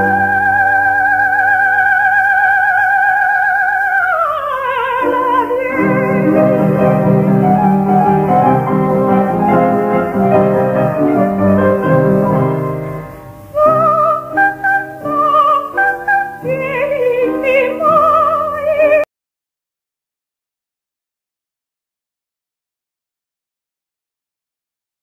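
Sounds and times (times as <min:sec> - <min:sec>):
soprano singing high notes: 0:00.0 - 0:19.1
instrumental accompaniment: 0:04.8 - 0:19.0.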